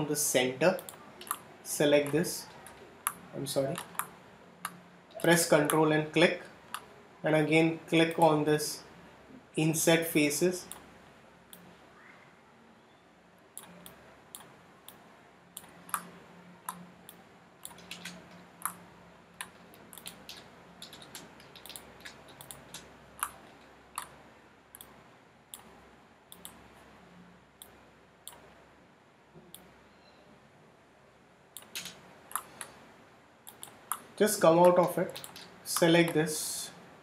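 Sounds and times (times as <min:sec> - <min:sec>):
faint low hum: 0:00.0 - 0:37.0
mouse and keyboard clicks: 0:00.8 - 0:05.8, 0:15.6 - 0:18.8, 0:19.4 - 0:24.2, 0:31.6 - 0:32.8, 0:33.5 - 0:36.2.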